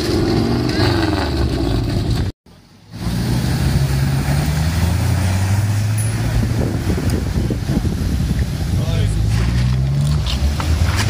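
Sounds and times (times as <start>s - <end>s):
car engine droning: 0.0s - 11.0s
water splashing around tyres: 2.9s - 11.0s.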